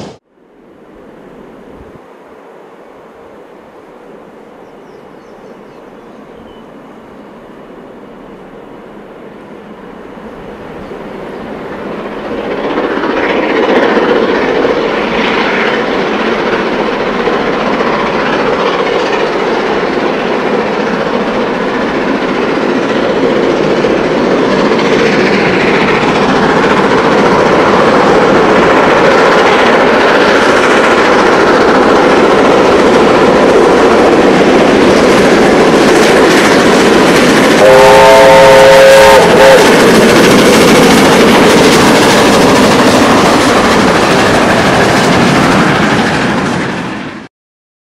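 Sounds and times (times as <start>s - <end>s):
steam locomotive exhaust: 4.0s - 47.3s
steam whistle: 37.5s - 39.8s.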